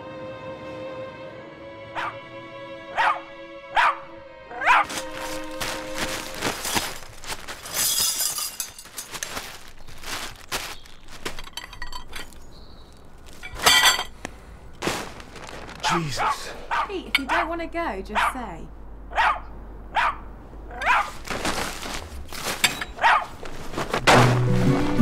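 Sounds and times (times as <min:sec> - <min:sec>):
film score chord: 0:00.0 - 0:06.6
small dog barking: 0:02.0 - 0:02.2, 0:03.0 - 0:03.2, 0:03.8 - 0:04.0, 0:04.6 - 0:04.9, 0:16.2 - 0:17.5, 0:18.2 - 0:18.4, 0:19.1 - 0:21.2, 0:23.0 - 0:23.4
clattering and rustling: 0:04.8 - 0:12.5, 0:13.2 - 0:15.9, 0:21.1 - 0:25.0.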